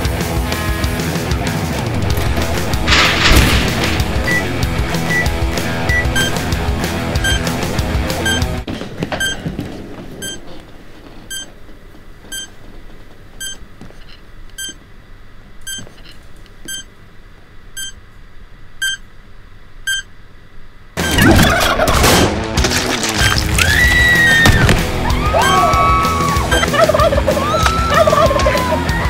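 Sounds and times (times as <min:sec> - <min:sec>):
electronic timer beeping: 0:04.2 - 0:06.5, 0:07.2 - 0:07.6, 0:08.2 - 0:08.5, 0:09.2 - 0:09.4, 0:10.2 - 0:10.4, 0:11.3 - 0:11.5, 0:12.3 - 0:12.5, 0:13.4 - 0:13.6, 0:14.5 - 0:14.8, 0:15.7 - 0:16.1, 0:16.7 - 0:16.9, 0:17.8 - 0:18.0, 0:18.8 - 0:19.0, 0:19.8 - 0:20.1
turkey gobble sound effect: 0:26.5 - 0:28.8.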